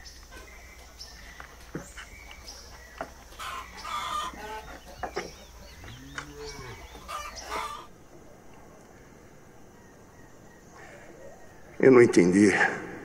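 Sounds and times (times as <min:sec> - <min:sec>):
chickens clucking: 0:00.0 - 0:08.7
rooster crowing: 0:05.6 - 0:07.9.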